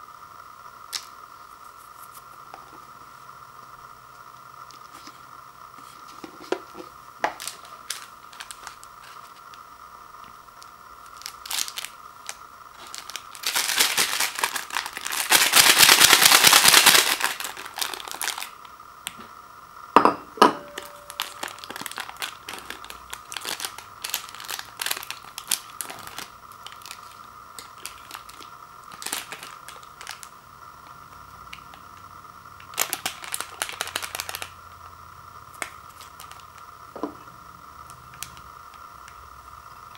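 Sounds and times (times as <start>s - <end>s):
plastic packets crinkling: 6.2s - 9.4s, 11.0s - 18.6s, 20.7s - 30.3s, 32.7s - 34.6s, 35.6s - 36.5s
packet tearing open: 7.3s - 9.4s, 11.0s - 18.6s, 20.8s - 30.3s, 32.7s - 34.5s.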